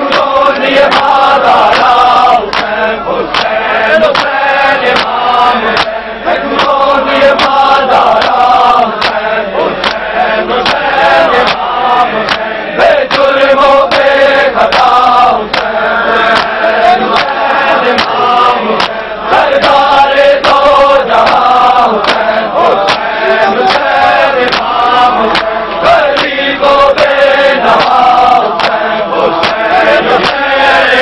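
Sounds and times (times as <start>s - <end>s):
men chanting in unison: 0.0s - 31.0s
hands slapping chests: 0.1s - 6.0s, 6.6s - 6.8s, 7.4s - 8.4s, 9.0s - 9.2s, 9.8s - 10.0s, 10.6s - 13.3s, 13.9s - 14.1s, 14.7s - 14.9s, 15.5s - 18.2s, 18.8s - 19.0s, 21.2s - 28.8s, 29.4s - 30.4s.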